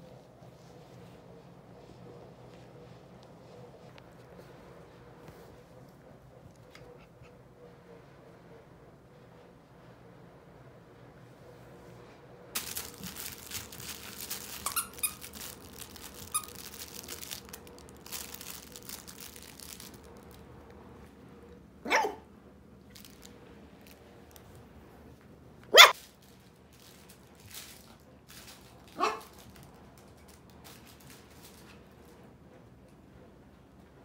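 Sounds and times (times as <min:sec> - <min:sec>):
puppies rustling and scuffling: 0:00.0 - 0:07.3, 0:12.6 - 0:21.0, 0:22.8 - 0:33.0
puppy barks: 0:21.8 - 0:22.3, 0:25.7 - 0:26.0, 0:29.0 - 0:29.3.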